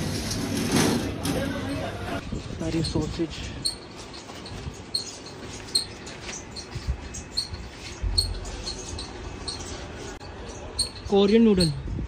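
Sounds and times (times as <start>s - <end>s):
short high-pitched squeaks: 3.6s - 11.7s.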